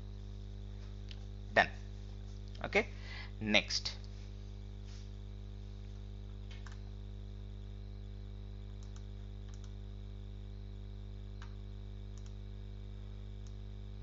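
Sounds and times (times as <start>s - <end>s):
faint high whine: 0.0s - 14.0s
low electrical hum: 0.0s - 14.0s
computer mouse clicks: 6.4s - 6.8s, 8.7s - 9.8s, 11.4s - 12.4s, 13.4s - 13.6s.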